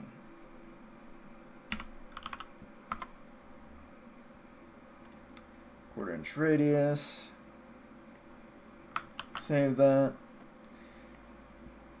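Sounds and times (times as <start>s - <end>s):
keyboard keys clicking: 1.7s - 3.1s, 9.0s - 9.5s.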